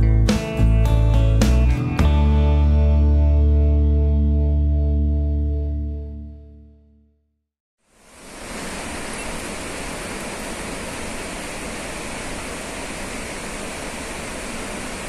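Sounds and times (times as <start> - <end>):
running water rushing: 7.9 - 15.0.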